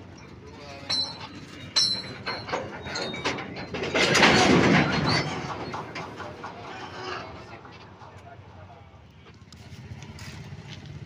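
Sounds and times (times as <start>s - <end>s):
wheel squeals: 0.0s - 8.5s
train wheel rush: 0.0s - 11.0s
metallic knocks: 0.7s - 8.5s.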